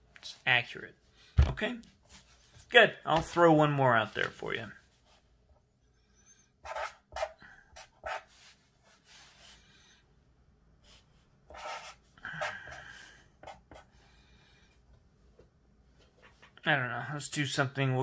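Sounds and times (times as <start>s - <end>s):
marker squeaking on paper: 6.2s - 8.3s, 11.5s - 12.5s.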